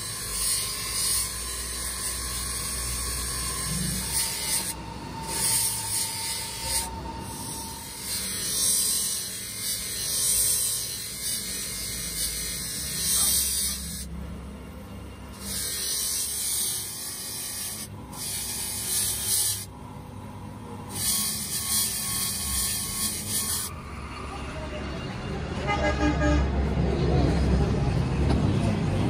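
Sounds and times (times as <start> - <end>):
metal tube rubbing on polishing wheel: 0.0 - 14.2, 15.3 - 19.7, 20.9 - 23.8
buffing motor humming: 0.0 - 24.2.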